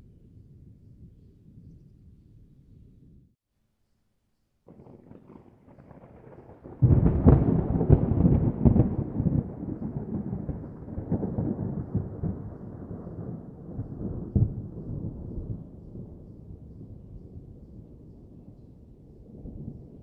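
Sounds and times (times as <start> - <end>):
thunder rolling and cracking: 4.7 - 18.0.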